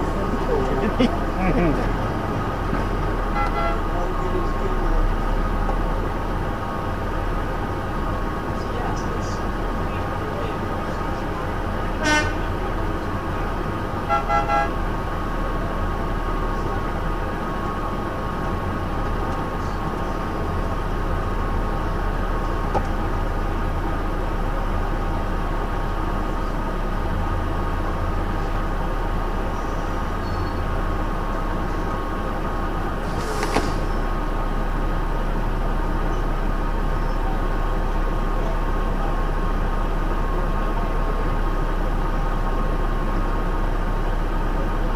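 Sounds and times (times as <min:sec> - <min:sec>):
truck engine running: 0:00.0 - 0:44.9
horn toots: 0:03.3 - 0:04.0, 0:11.9 - 0:12.6, 0:14.0 - 0:14.8
brief hiss: 0:33.0 - 0:34.0.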